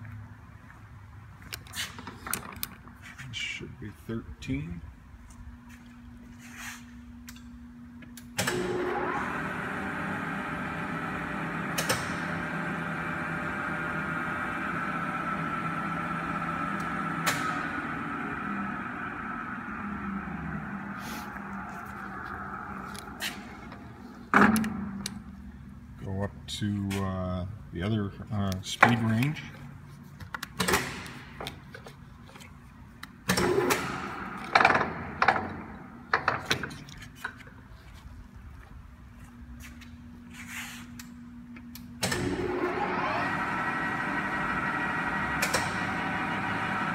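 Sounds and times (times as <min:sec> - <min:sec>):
lathe hum with gear whine: 0:08.5 - 0:24.0, 0:42.2 - 0:46.9
lathe gear levers clunking: 0:22.9 - 0:25.2.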